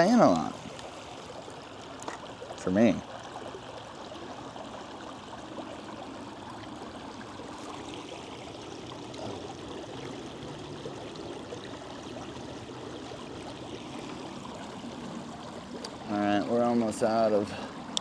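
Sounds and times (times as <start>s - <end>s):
creek running over stones: 0.0s - 18.0s.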